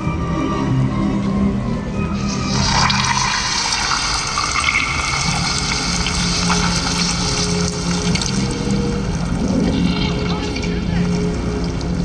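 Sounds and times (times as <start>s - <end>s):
low background music drone: 0.0s - 12.0s
rushing water hiss: 2.2s - 9.4s.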